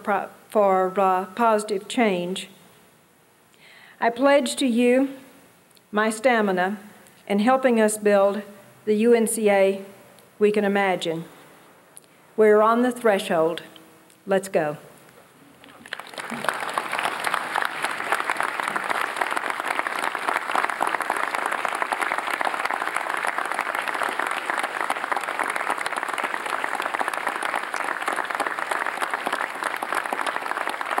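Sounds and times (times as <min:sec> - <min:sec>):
audience applauding: 0:15.6 - 0:31.0.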